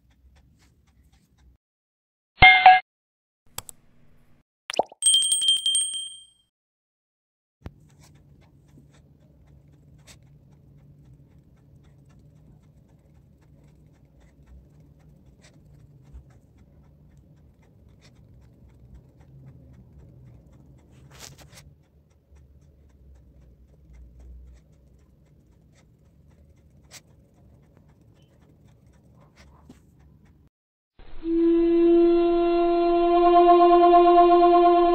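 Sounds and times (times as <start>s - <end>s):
low room hum: 7.7s - 30.5s.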